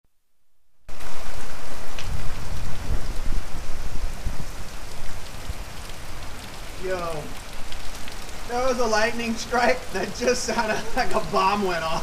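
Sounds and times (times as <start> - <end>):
low rumbling: 0.9 - 10.2
heavy rain pouring: 0.9 - 12.0.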